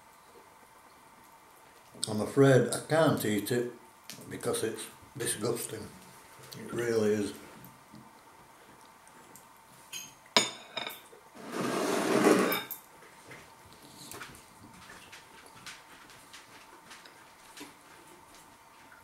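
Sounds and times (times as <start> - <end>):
fork clinking on ceramic bowl: 10.0 - 11.0
bowl scraping across worktop: 10.6 - 12.8.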